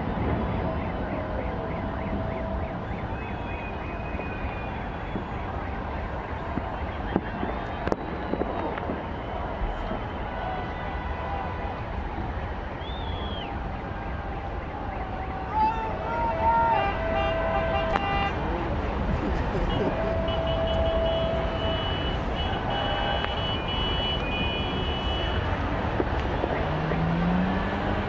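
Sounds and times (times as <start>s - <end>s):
city street crowd din: 0.0s - 28.0s
traffic rumble: 0.0s - 28.0s
short high whistle: 12.8s - 13.5s.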